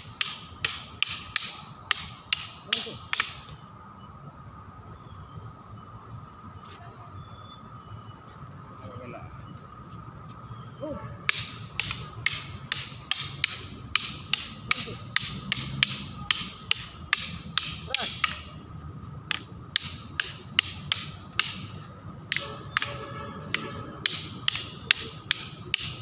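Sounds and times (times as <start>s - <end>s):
wooden sticks clacking: 0.0s - 3.6s, 11.2s - 26.0s.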